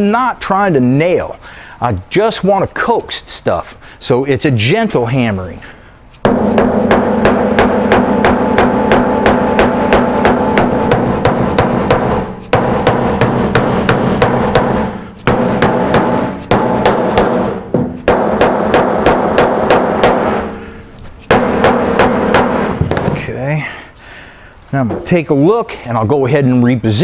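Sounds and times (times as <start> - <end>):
rubber mallet tapping steel panel: 6.2 - 20.7, 21.3 - 23.2.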